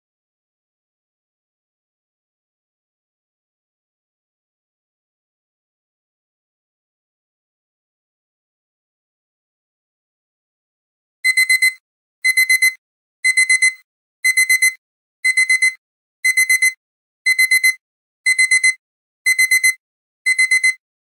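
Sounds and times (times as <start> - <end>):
alarm clock beeping: 11.2 - 20.8.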